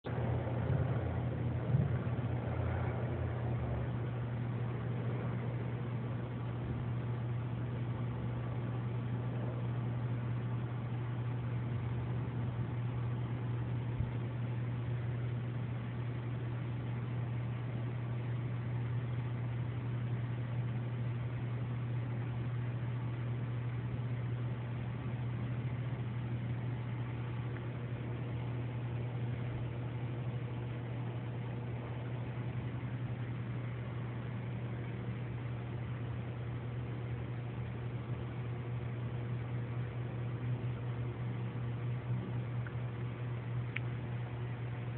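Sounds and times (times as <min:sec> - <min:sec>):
low mechanical hum: 0:00.0 - 0:44.9
motor humming: 0:00.1 - 0:21.7.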